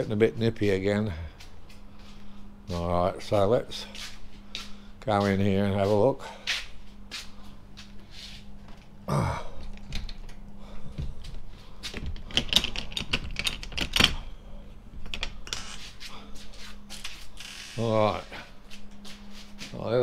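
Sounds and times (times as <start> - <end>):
steady low hum: 0.0 - 20.0
padlock clicking and rattling: 12.0 - 14.2.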